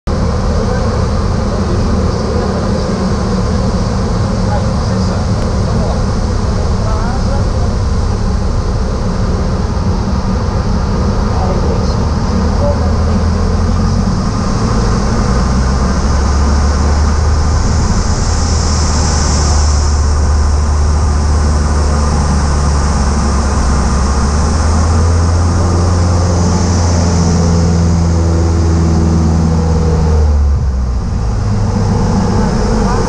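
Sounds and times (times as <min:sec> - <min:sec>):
propeller engine droning: 0:00.0 - 0:33.0
rushing airflow hiss: 0:13.1 - 0:30.1.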